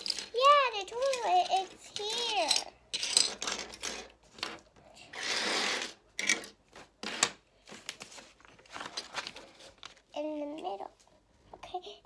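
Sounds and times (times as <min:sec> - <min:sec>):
plastic toy pieces clicking: 0:00.0 - 0:04.6.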